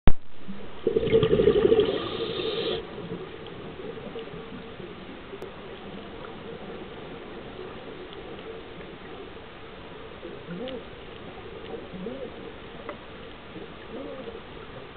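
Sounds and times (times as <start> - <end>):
low underwater background: 0.1 - 14.9
diver's breath bubbling underwater: 0.8 - 2.9.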